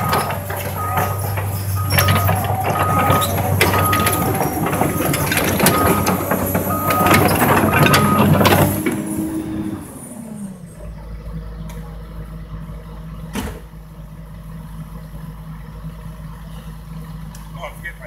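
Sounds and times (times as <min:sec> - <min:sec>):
alarm beeps: 0:00.0 - 0:08.4
machine clanking and knocking: 0:00.0 - 0:09.4
excavator diesel engine hum: 0:00.0 - 0:18.0.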